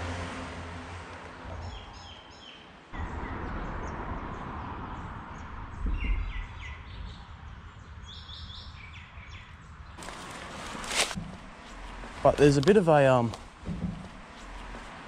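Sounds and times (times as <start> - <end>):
small birds chirping: 1.6 - 10.3.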